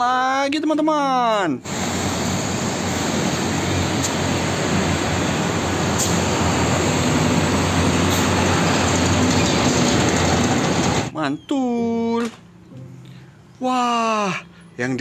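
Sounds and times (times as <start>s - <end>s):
low engine hum: 1.7s - 11.1s
trucks and motorbikes driving past: 1.7s - 11.2s.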